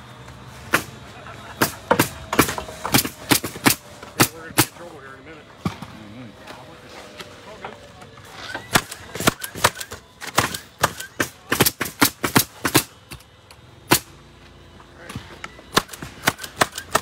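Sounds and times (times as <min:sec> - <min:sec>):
nail gun shots: 0:01.6 - 0:04.8, 0:08.7 - 0:13.2, 0:13.9 - 0:14.1, 0:15.7 - 0:17.0.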